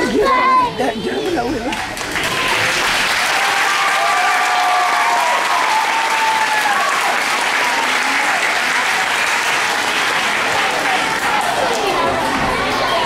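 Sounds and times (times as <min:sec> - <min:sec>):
crowd clapping and cheering: 0:01.6 - 0:13.0
children screaming: 0:03.4 - 0:07.2.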